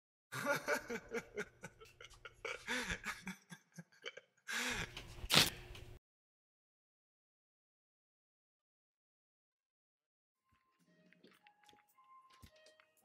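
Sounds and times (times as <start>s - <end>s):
person laughing: 0.3s - 5.0s.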